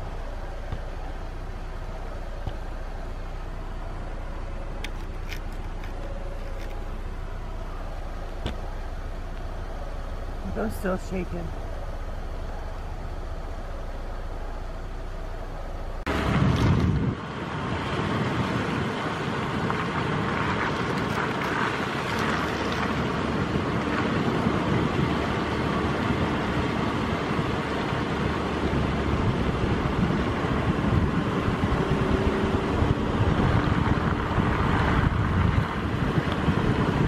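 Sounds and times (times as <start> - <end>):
car engine and cabin hum: 0.0 - 37.0.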